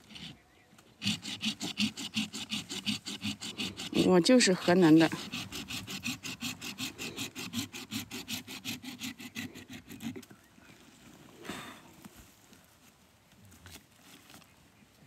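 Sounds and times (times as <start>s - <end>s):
hand saw cutting root: 0.0s - 10.3s.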